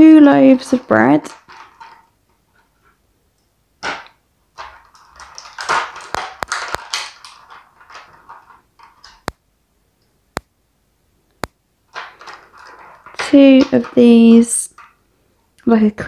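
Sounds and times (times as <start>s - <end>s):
plastic packaging crinkling: 0.0s - 3.0s, 3.8s - 9.4s, 11.9s - 15.0s
plastic pieces clicking down: 0.5s - 2.1s, 3.8s - 9.4s, 11.4s - 15.0s.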